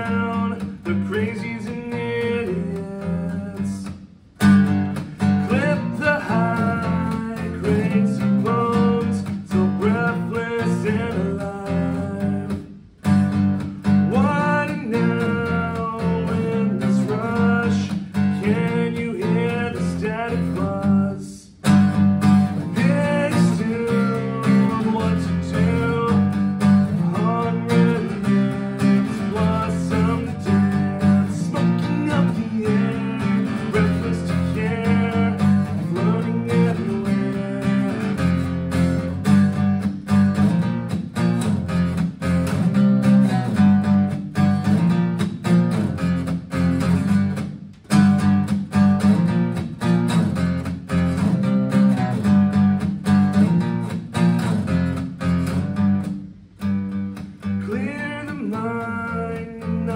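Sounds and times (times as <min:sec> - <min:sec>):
man singing: 0:00.0 - 0:04.0, 0:05.2 - 0:12.7, 0:13.8 - 0:21.8, 0:22.5 - 0:39.3, 0:57.4 - 0:59.9
acoustic guitar strumming: 0:00.0 - 0:59.9.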